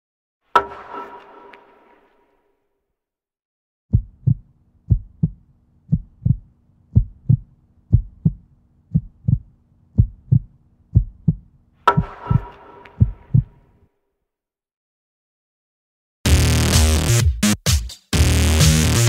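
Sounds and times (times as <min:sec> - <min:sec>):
heartbeat thumps: 0:03.9 - 0:13.6.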